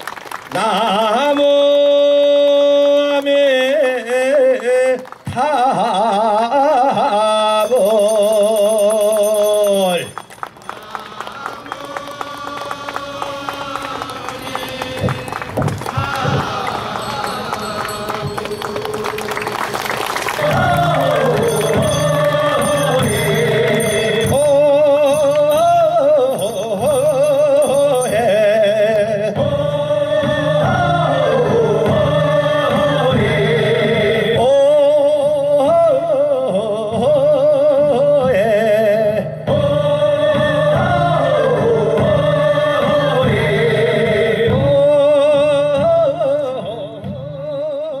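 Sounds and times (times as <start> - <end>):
percussion: 5.0 - 48.0
low accompaniment: 10.1 - 48.0.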